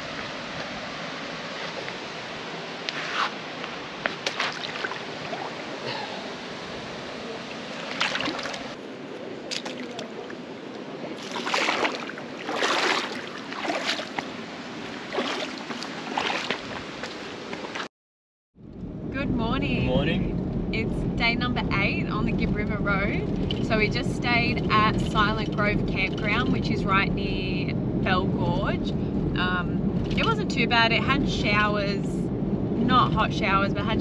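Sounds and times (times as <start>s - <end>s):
flowing water rushing: 0.0s - 17.9s
water splashing in a pool: 0.0s - 17.9s.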